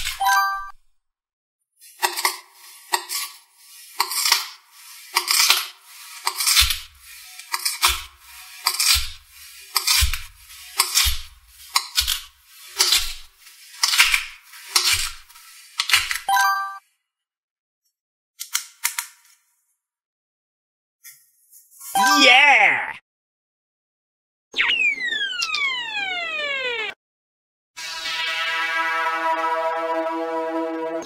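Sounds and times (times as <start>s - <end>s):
knife crunching through sand: 1.9s - 15.3s.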